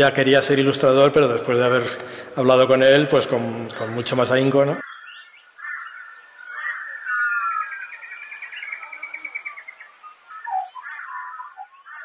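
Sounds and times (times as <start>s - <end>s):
birds calling: 0.0s - 12.0s
rapid repeated bird notes: 3.4s - 12.0s.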